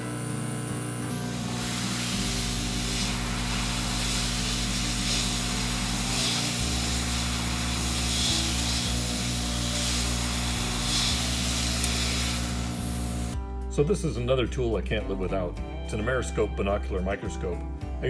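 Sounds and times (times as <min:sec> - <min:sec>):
hot air hissing from nozzle: 0:01.1 - 0:13.4.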